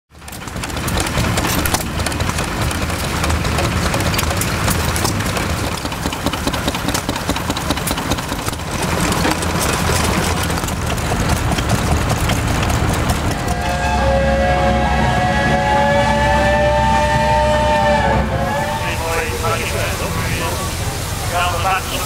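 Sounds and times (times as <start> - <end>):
sharp clicks and knocks: 0.1 - 13.8
stationary engines chugging: 0.1 - 22.0.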